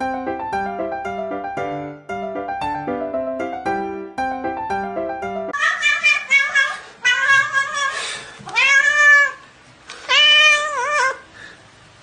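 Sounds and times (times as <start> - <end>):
cat meowing: 5.6 - 11.3.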